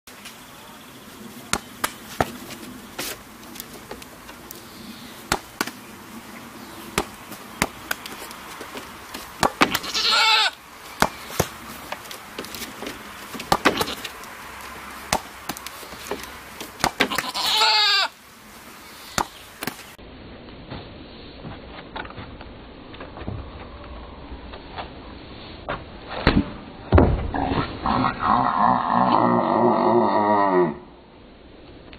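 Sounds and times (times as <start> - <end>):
goat butting a ball: 8.7 - 10.2, 12.4 - 14.1, 15.1 - 17.5
goat bleating: 9.7 - 10.6, 17.0 - 18.1.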